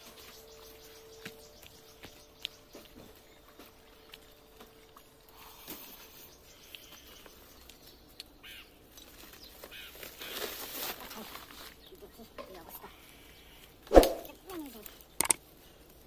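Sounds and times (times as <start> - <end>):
plastic bags rustling: 8.9 - 12.3.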